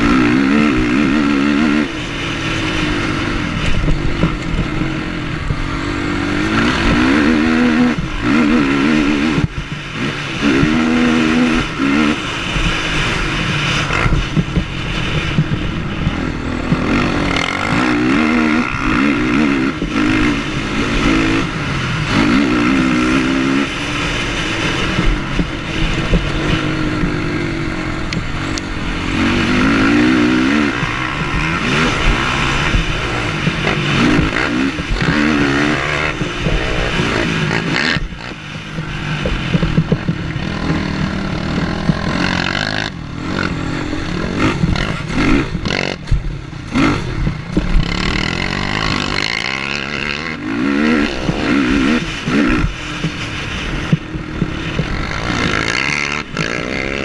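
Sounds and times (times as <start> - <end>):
quad engine revving: 0.0 - 57.0
rattles and knocks of quad bouncing: 0.0 - 57.0.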